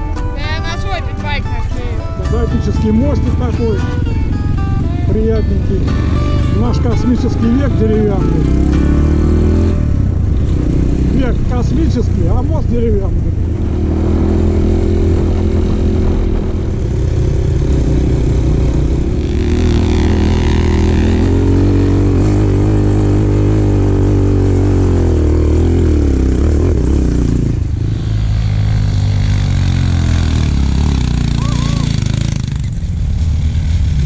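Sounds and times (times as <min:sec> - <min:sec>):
motorcycle engine revving: 0:00.0 - 0:34.0.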